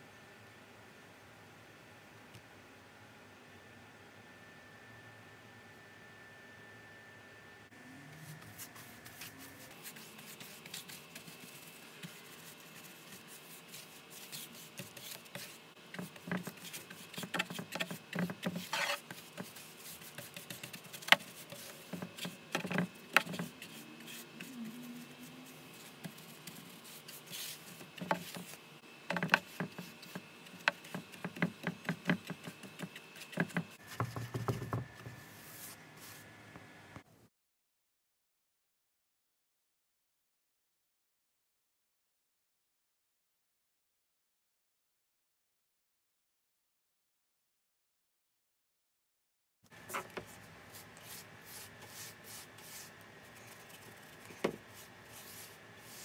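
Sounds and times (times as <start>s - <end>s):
paintbrush scraping on wood: 8.2s - 36.2s, 49.8s - 56.0s.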